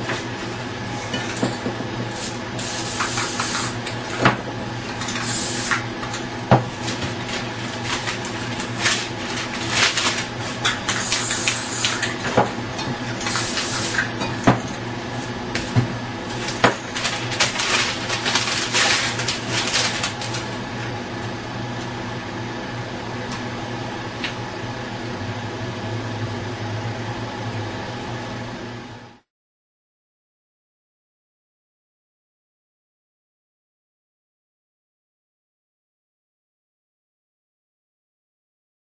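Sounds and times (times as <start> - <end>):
steady background hum: 0.0 - 29.2
spray-paint cans hissing: 2.1 - 3.8, 5.2 - 5.7, 10.9 - 11.9, 13.2 - 14.1
cans and paper knocking: 5.0 - 14.6, 15.5 - 20.5.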